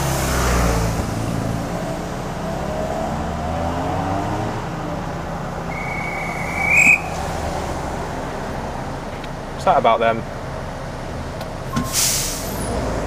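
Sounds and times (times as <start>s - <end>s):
shrill whistle blast: 5.7s - 7.2s.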